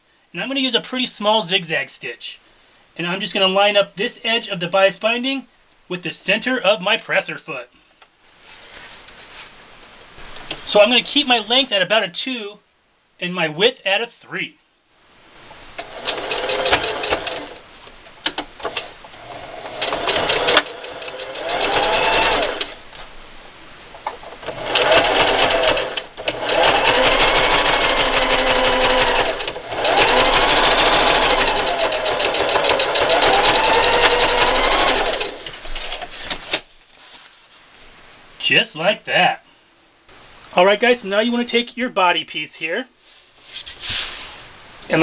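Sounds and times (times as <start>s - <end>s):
sewing machine clicks: 15.8s - 17.6s, 19.7s - 22.8s, 24.5s - 35.5s
sewing machine running: 15.8s - 17.6s, 19.2s - 22.8s, 24.5s - 35.5s.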